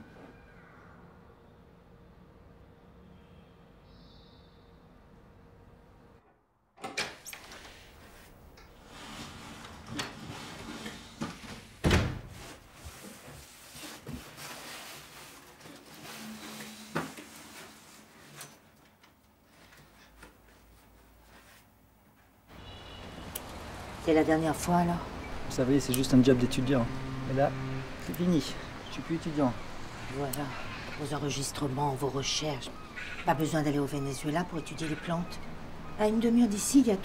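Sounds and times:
rustling: 7.4s - 22.3s.

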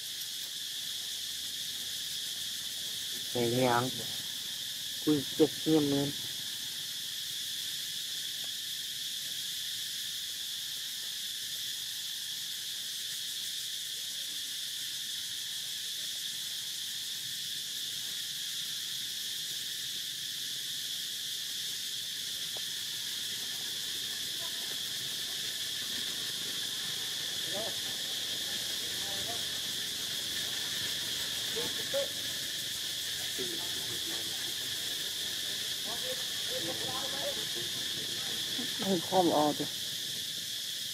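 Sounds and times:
insect chorus buzzing: 0.0s - 40.9s.

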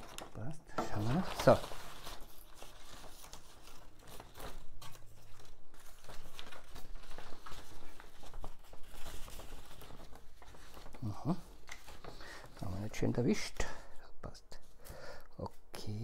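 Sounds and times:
paper rustling and crinkling: 0.0s - 14.0s.

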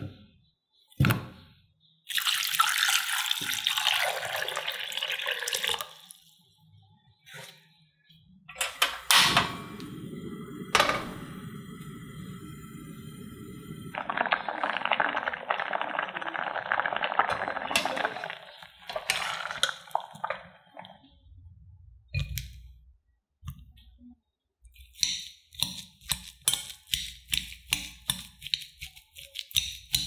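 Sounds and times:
potato masher squishing: 25.5s - 30.0s.

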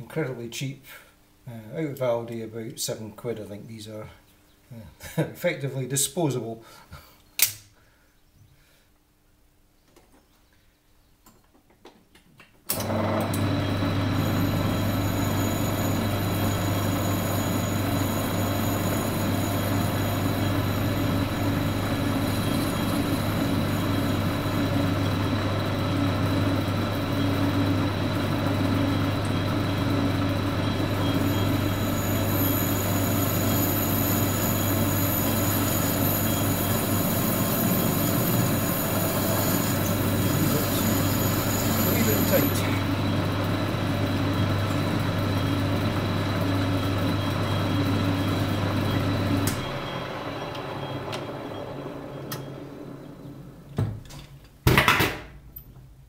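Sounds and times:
lathe motor hum with whine: 12.7s - 53.7s.

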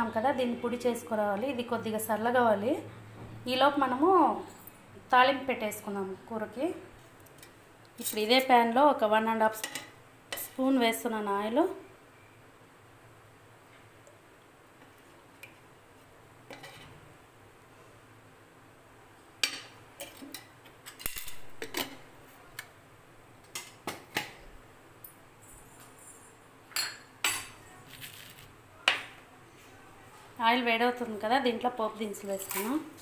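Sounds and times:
steel utensils clinking: 32.2s - 32.8s.

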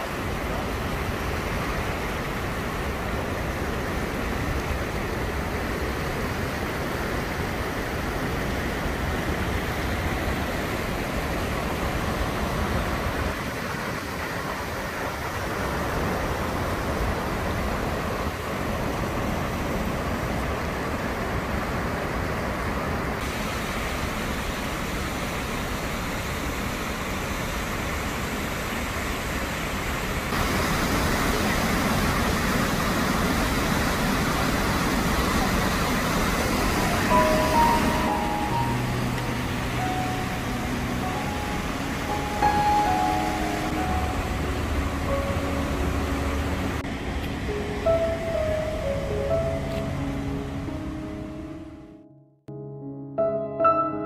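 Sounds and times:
river water roaring: 0.0s - 51.8s.

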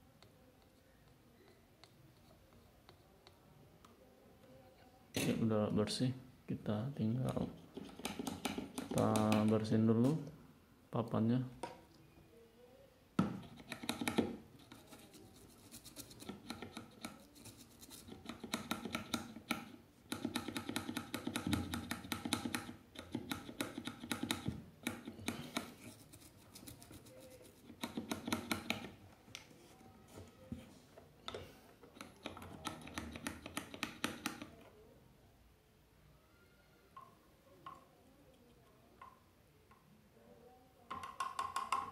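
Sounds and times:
scratchy scrubbing: 25.7s - 27.8s.

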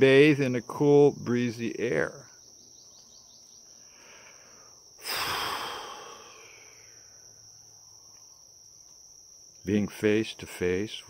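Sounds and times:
high-pitched insect trill: 0.0s - 11.0s
loud breath out: 3.8s - 7.0s.

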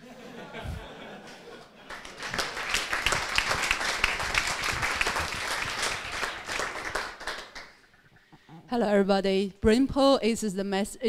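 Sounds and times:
crowd applauding: 1.8s - 8.0s.

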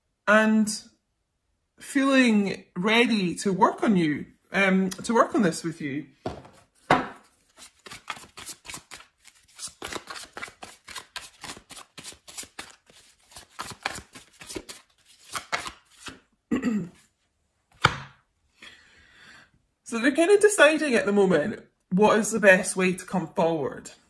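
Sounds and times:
cards shuffled by hand: 6.4s - 16.2s
card handling sounds: 6.5s - 16.2s.

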